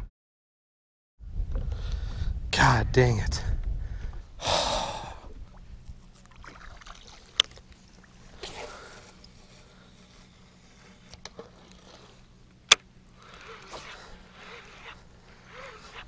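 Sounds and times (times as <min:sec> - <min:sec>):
faint low engine hum: 0:01.5 - 0:16.0
water swishing: 0:05.3 - 0:16.0.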